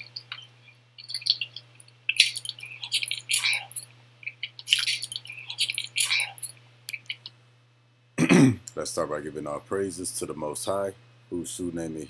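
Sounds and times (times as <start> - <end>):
wet chewing and smacking: 0.0 - 7.3
faint hum: 0.0 - 12.0.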